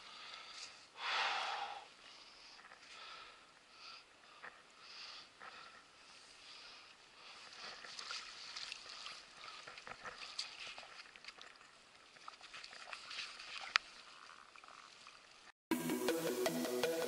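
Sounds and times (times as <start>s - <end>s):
water splashing and lapping: 6.5s - 15.5s.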